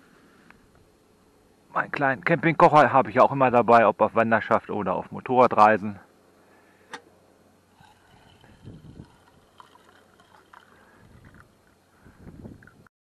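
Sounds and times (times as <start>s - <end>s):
hot water pouring into mug: 7.8s - 11.8s.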